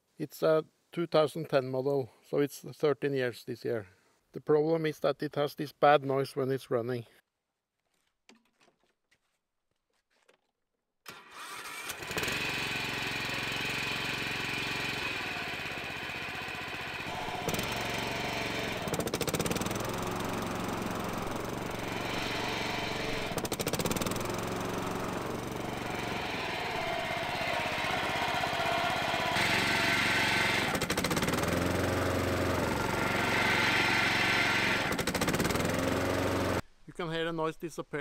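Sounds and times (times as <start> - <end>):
lawn mower engine running: 11.1 - 36.6
rapid rattling: 17.0 - 33.2.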